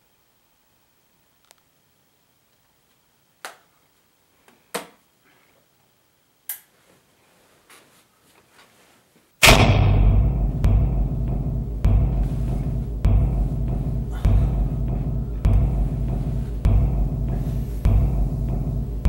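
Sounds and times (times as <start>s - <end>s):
loud music with deep drum hits: 9.4s - 19.0s.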